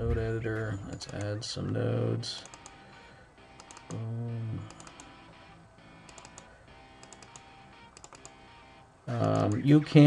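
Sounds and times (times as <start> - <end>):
faint background music: 0.0 - 10.0
keyboard and mouse clicks: 0.9 - 1.8, 2.4 - 2.8, 3.5 - 4.0, 4.6 - 5.2, 6.0 - 8.4, 9.1 - 9.7.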